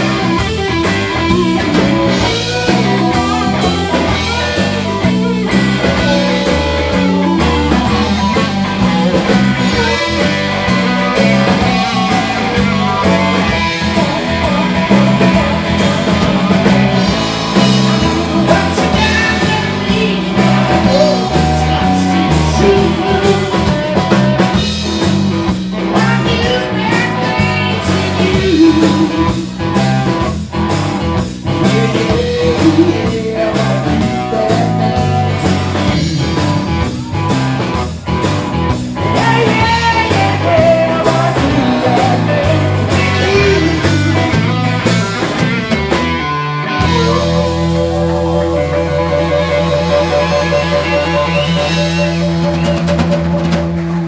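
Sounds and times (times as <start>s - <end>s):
blues-rock band playing: 0.0s - 54.0s
wailing amplified harmonica: 26.4s - 29.6s, 46.7s - 54.0s.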